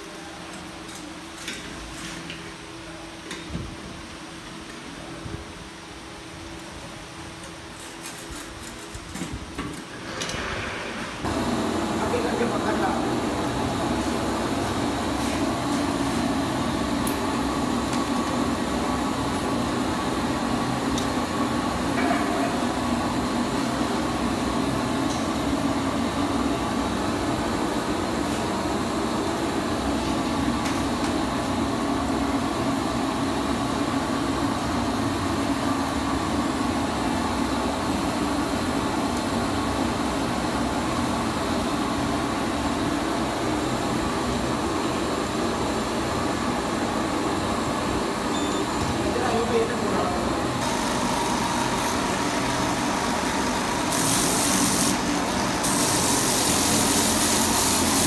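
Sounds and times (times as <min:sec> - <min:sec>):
air-powered tire buffer whirring: 0:50.6 - 0:58.0.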